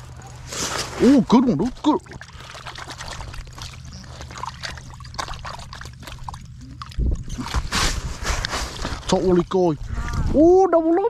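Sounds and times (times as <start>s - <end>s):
steady low hum: 0.0s - 11.0s
water trickling and splashing: 0.0s - 11.0s.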